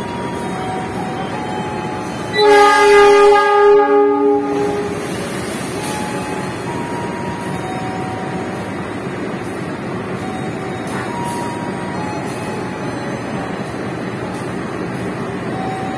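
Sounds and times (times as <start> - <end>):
diesel locomotives running: 0.0 - 15.9
locomotive horn blast: 2.2 - 5.1.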